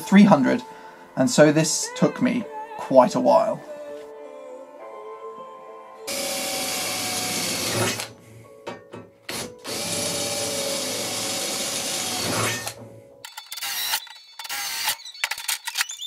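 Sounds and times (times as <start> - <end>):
electric drill boring metal: 6.1 - 8.1, 9.3 - 15.8.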